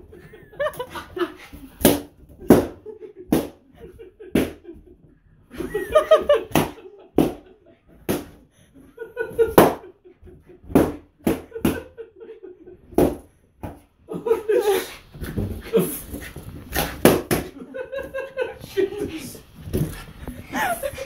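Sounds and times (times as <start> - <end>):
person laughing: 5.6 - 6.8, 20.2 - 21.0
balloons popping: 16.1 - 17.6.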